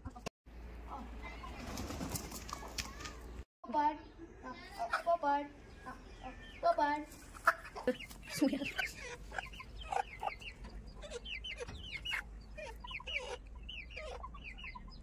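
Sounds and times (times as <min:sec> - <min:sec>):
chickens clucking and calling: 0:04.1 - 0:15.0.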